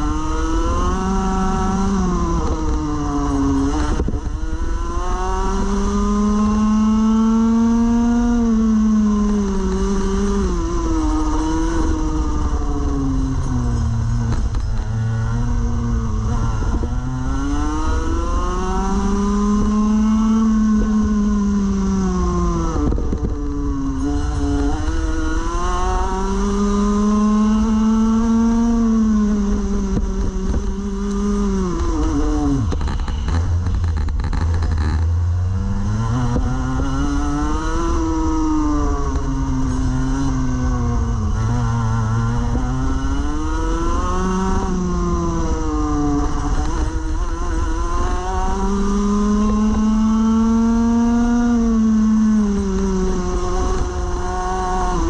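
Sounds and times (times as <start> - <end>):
kart engine racing: 0.0 - 55.0.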